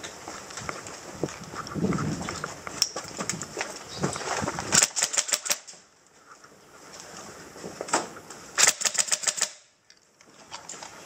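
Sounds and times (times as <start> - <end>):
airsoft gun firing: 4.7 - 5.7, 8.6 - 9.7.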